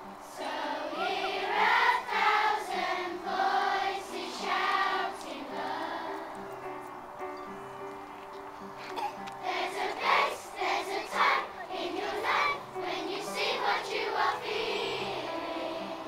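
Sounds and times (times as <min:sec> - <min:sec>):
children's choir singing: 0:00.0 - 0:07.2, 0:09.0 - 0:16.0
upright piano accompaniment: 0:03.8 - 0:16.0.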